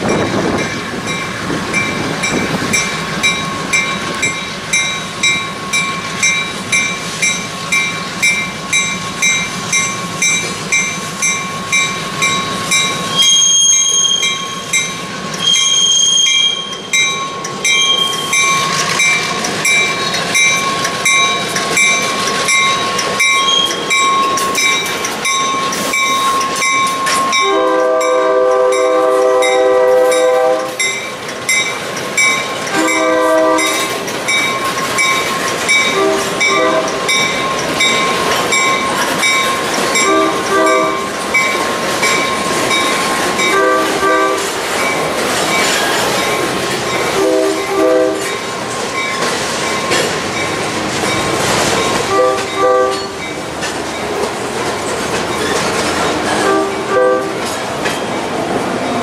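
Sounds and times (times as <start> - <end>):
rail wheels clattering: 0.0 - 59.0
locomotive air horn blasts: 27.4 - 30.8, 32.7 - 33.9, 35.9 - 37.0, 40.0 - 41.1, 43.5 - 44.5, 47.2 - 48.2, 52.1 - 53.2, 56.4 - 57.4.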